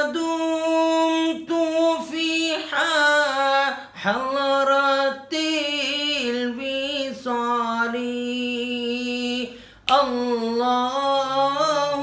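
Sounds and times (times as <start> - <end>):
man singing devotional chant: 0.0 - 12.0.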